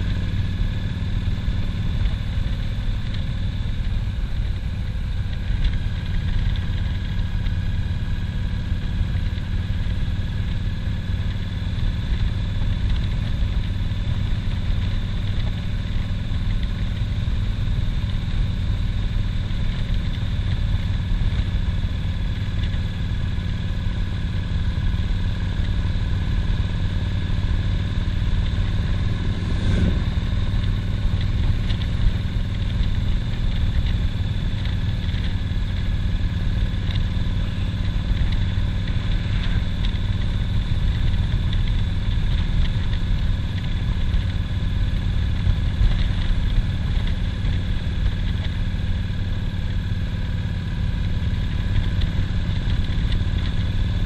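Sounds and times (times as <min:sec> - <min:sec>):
motorcycle engine running: 0:00.0 - 0:54.0
wind noise on microphone: 0:27.8 - 0:34.2.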